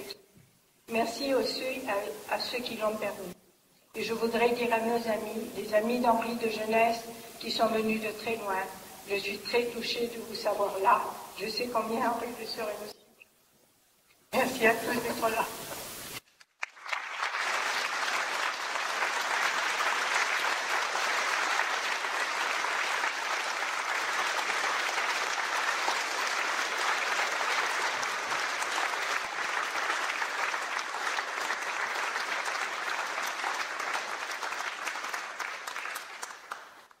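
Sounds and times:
audience applauding: 0:16.4 - 0:37.0.

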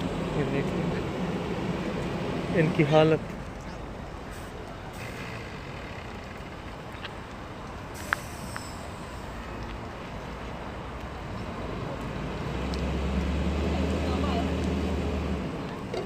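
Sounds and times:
deeper engine hum: 0:00.0 - 0:07.8
vehicle engine idling: 0:00.0 - 0:12.0.

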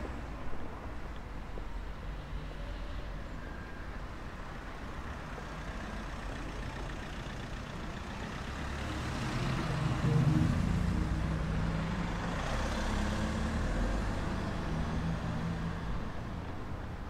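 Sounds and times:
road traffic passing: 0:00.0 - 0:17.0
large vehicle engine: 0:05.6 - 0:16.1.

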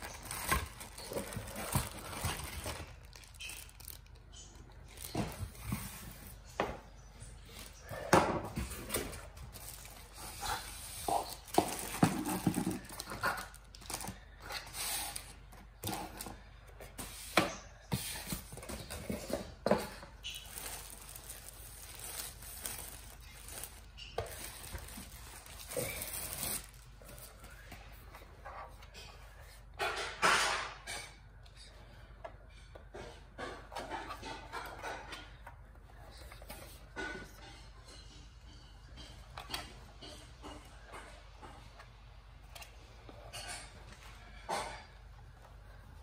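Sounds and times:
plastic bags crinkling: 0:00.0 - 0:06.1, 0:09.4 - 0:10.4, 0:11.1 - 0:14.4, 0:20.2 - 0:27.7.

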